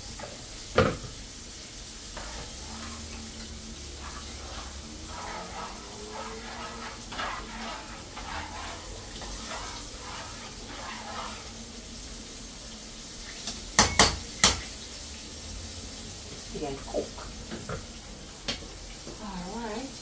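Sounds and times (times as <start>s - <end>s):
frying sizzle: 0.0s - 20.0s
utensil scraping and stirring: 2.0s - 12.1s.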